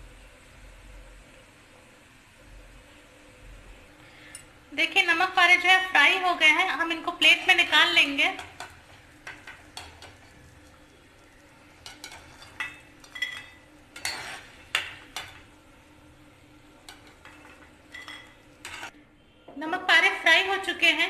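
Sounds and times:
oil sizzling: 0.0s - 19.0s
metal ladle scraping a pan: 11.8s - 15.4s, 16.9s - 19.0s.

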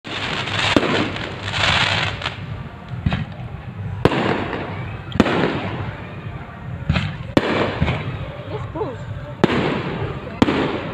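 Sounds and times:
crackle of firework sparks: 0.0s - 5.8s.

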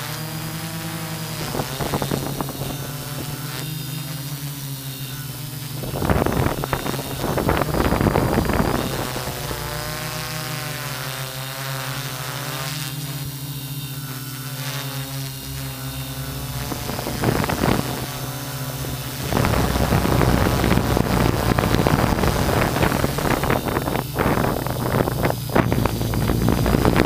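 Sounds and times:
drone motors buzzing whine: 0.0s - 27.0s
wind rushing over microphone: 1.2s - 4.5s, 5.2s - 11.0s, 15.6s - 27.0s.

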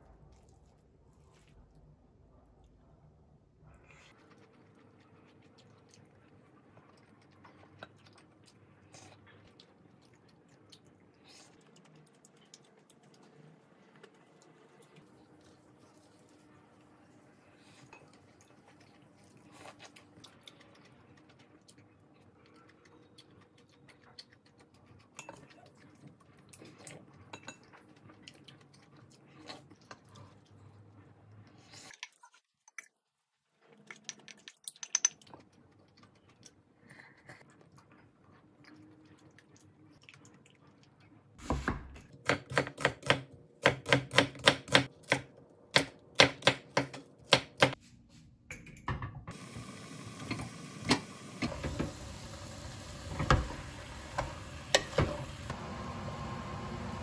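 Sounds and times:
meat sizzling in a pot: 49.3s - 57.0s.

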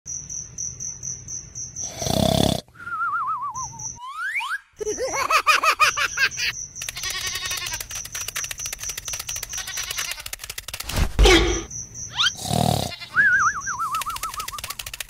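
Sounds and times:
quick rising whistles: 2.8s - 4.7s, 13.2s - 15.0s.

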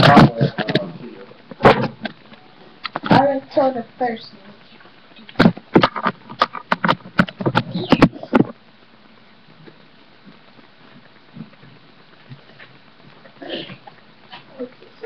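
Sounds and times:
sharp knocks and thumps: 5.4s - 8.6s.

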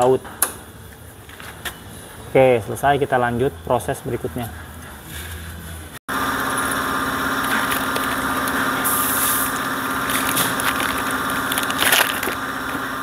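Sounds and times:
motor humming: 6.1s - 13.0s
plastic crinkling: 10.1s - 12.8s.

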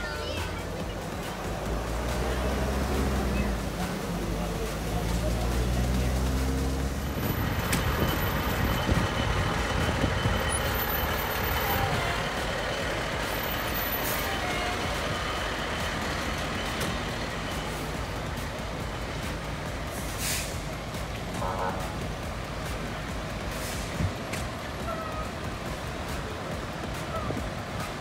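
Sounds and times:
fire engine driving past: 0.0s - 28.0s.

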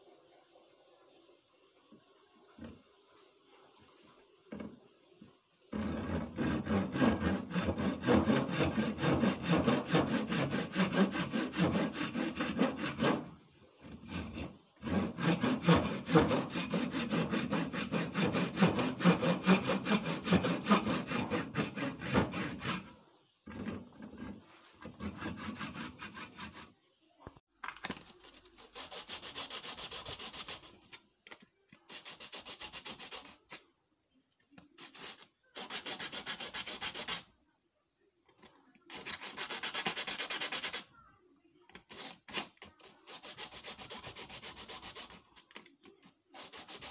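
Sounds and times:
hand saw cutting wood: 5.7s - 26.8s, 46.4s - 46.9s
wood rubbed on sandpaper: 5.8s - 22.9s, 23.6s - 26.8s, 28.2s - 30.9s, 31.9s - 33.5s, 34.8s - 37.3s, 38.9s - 40.9s, 41.9s - 45.4s, 46.3s - 46.9s.

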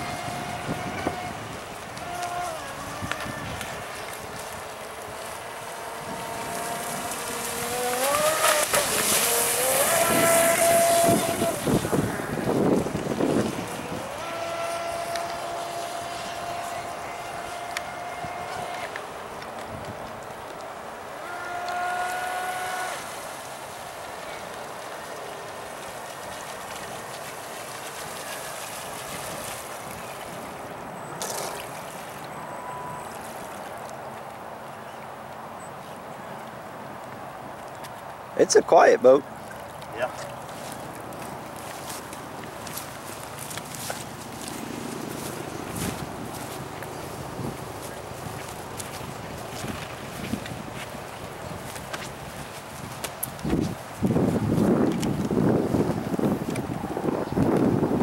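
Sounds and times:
electric boat motor whine: 0.0s - 19.6s, 21.1s - 23.2s
water rushing and spraying: 0.0s - 58.0s.

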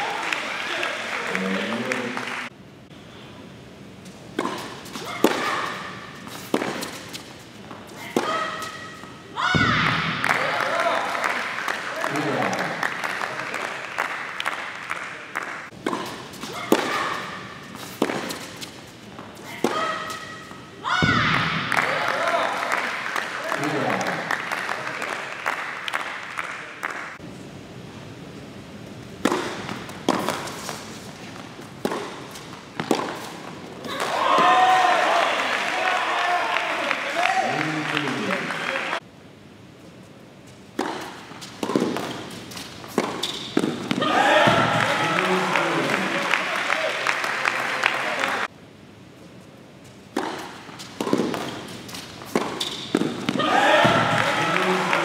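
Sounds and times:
applause: 0.0s - 2.5s, 10.2s - 15.7s, 21.7s - 27.2s, 35.0s - 39.0s, 44.7s - 48.5s, 54.2s - 55.0s
rackets striking tennis ball: 4.1s - 12.9s, 15.4s - 24.3s, 29.2s - 34.6s, 40.7s - 46.1s, 50.1s - 55.0s
tennis ball struck hard: 4.4s - 7.0s, 29.2s - 30.6s, 31.8s - 33.3s, 40.8s - 42.3s, 42.9s - 44.8s, 50.2s - 51.6s.

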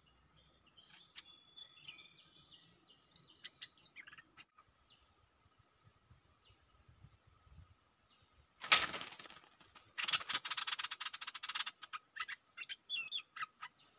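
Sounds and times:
wings fluttering against cage wire: 8.6s - 11.1s.

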